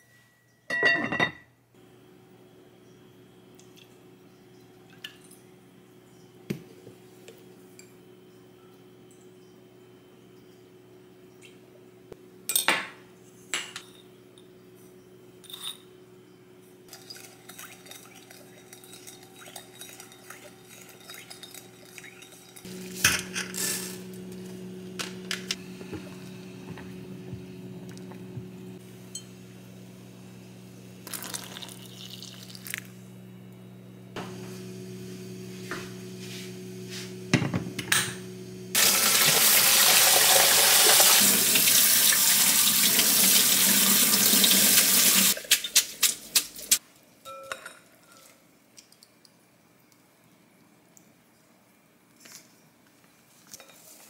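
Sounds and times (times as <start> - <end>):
dishes and utensils clinking: 0.3 - 1.5, 15.4 - 15.9, 16.9 - 23.9, 46.7 - 48.4
steady hum: 16.0 - 39.4
tap water running into sink: 38.8 - 45.4.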